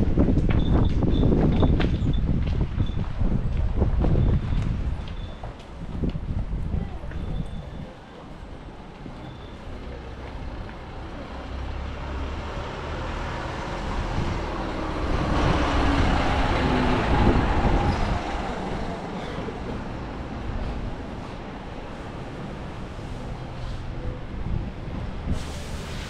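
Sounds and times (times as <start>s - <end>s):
motor vehicle passing: 9.8s - 26.0s.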